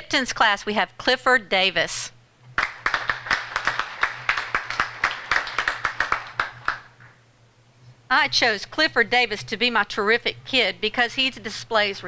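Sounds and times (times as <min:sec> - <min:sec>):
hands clapping: 0:02.6 - 0:07.2.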